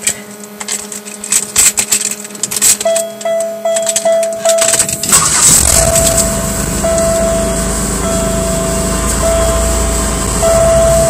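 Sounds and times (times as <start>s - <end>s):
car engine starting and idling: 2.6s - 11.0s
electronic chime beeps: 2.8s - 11.0s.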